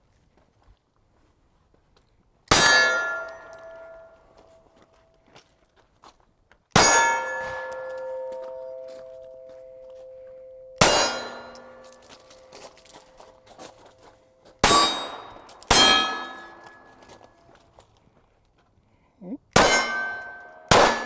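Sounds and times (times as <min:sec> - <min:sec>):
steel plate ringing: 0:02.5 - 0:04.2, 0:06.8 - 0:12.7, 0:14.6 - 0:17.2, 0:19.6 - 0:21.0
pistol shots: 0:10.8 - 0:12.0, 0:14.6 - 0:16.8, 0:19.6 - 0:21.0.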